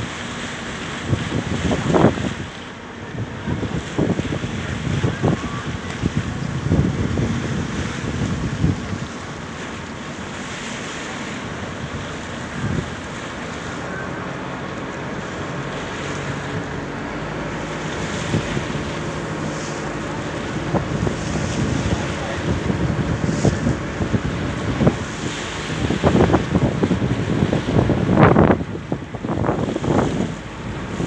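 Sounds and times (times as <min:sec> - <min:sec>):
faint low engine hum: 0:00.0 - 0:31.0
water rushing past boat: 0:00.0 - 0:31.0
wind buffeting microphone: 0:00.0 - 0:31.0.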